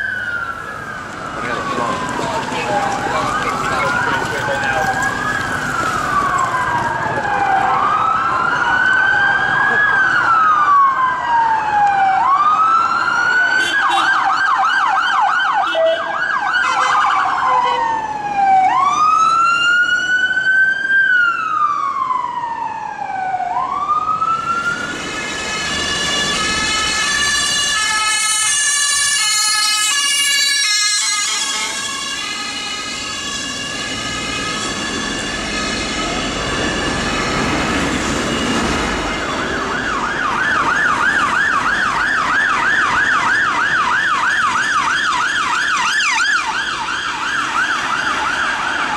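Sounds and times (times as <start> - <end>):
emergency vehicle sirens: 0.0 - 48.9.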